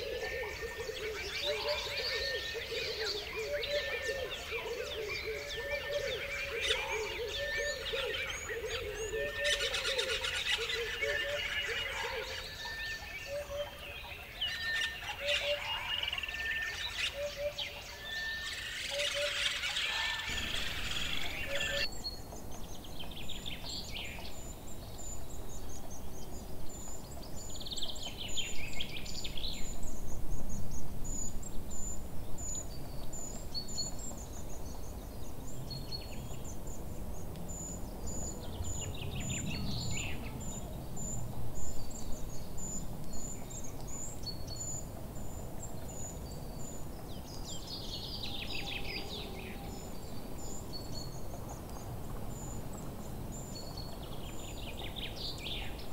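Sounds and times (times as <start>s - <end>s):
songbird trilling: 14.5s - 21.9s
low wind rumble: 20.2s - 55.9s
insect chirping: 20.3s - 21.8s.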